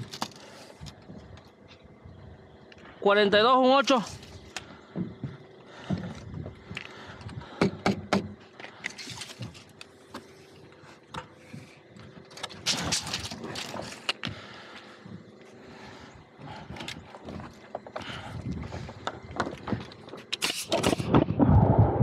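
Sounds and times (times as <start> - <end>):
boots on wooden sheathing: 3.9 - 20.3
short rattle: 11.1 - 14.5.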